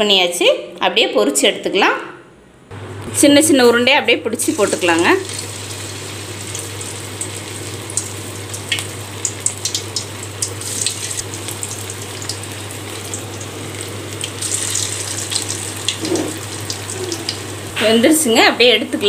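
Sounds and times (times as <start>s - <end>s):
food deep-frying in oil: 4.4s - 19.0s.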